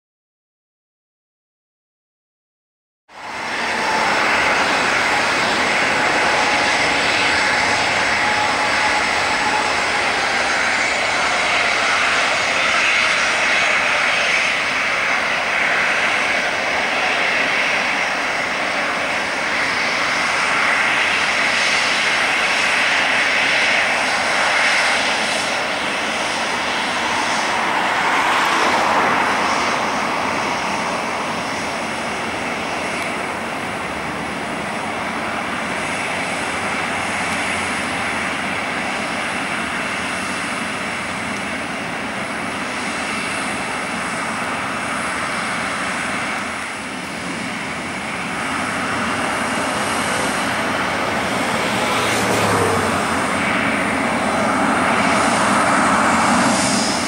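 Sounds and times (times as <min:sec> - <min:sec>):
jet engines taxiing: 0:03.1 - 0:57.0
faint high whine: 0:03.2 - 0:57.0.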